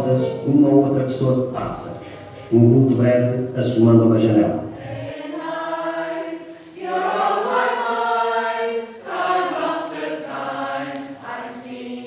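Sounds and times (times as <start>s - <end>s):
group singing: 4.2s - 12.0s.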